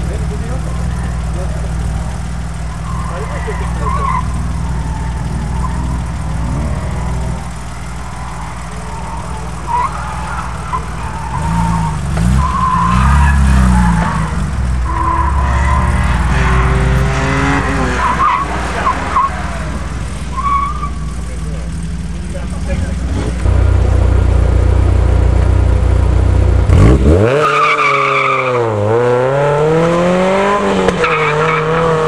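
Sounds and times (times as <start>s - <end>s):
tyres squealing: 0.0s - 23.4s
car engine revving: 0.0s - 32.0s.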